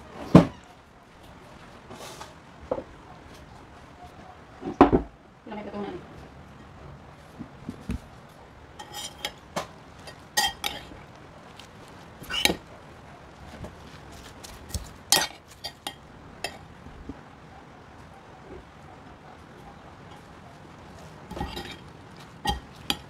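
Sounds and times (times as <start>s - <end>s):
spoon and fork clinking on pot: 10.0s - 10.9s, 15.1s - 16.6s, 21.3s - 21.8s, 22.4s - 23.0s.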